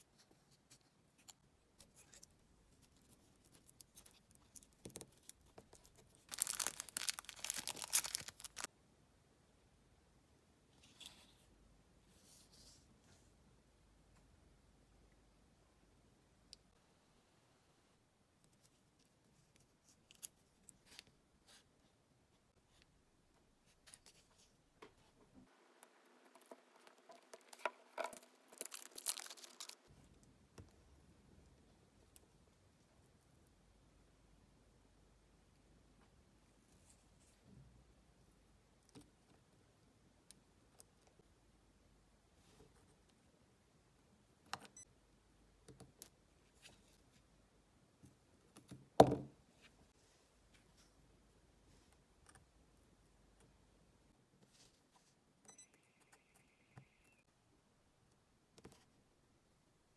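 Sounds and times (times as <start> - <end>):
tape crackling and tearing: 3.4 - 8.7, 26.2 - 29.9.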